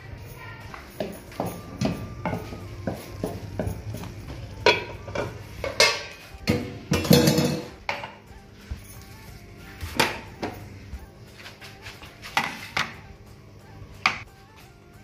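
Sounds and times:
faint background music: 0.0 - 15.0
metal pot lids clanking: 1.8 - 8.3.

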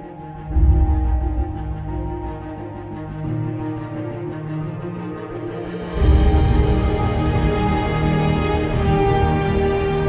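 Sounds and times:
sustained music tones: 0.0 - 10.0
deep bass: 0.4 - 3.4.

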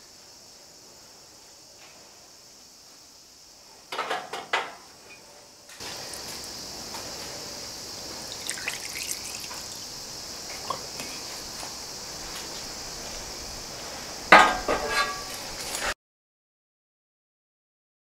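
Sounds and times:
steady hiss: 0.0 - 16.0
liquid dripping into a tank: 8.3 - 9.8.

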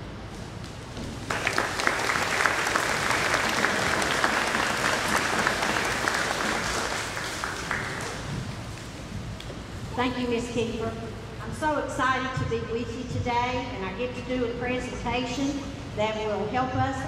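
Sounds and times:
audience applauding: 1.2 - 8.8.

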